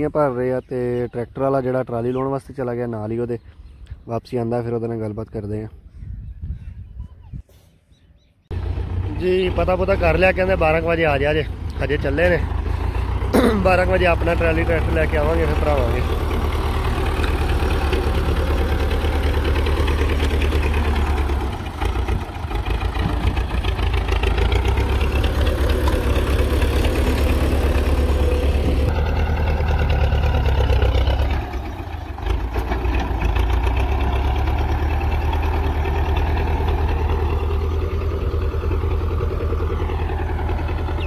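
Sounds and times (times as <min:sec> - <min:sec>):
diesel loader engine running hard: 0:08.5 - 0:41.0.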